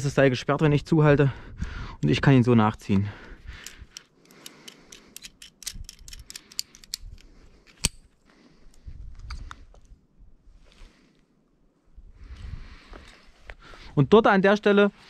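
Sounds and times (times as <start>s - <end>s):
metallic clicks of climbing gear: 2.9s - 10.0s.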